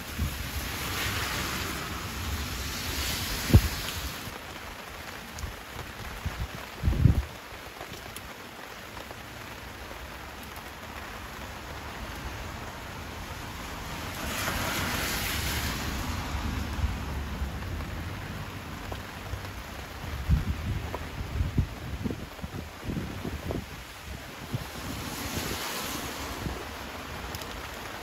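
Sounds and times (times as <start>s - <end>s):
steady rain falling: 0.0s - 28.0s.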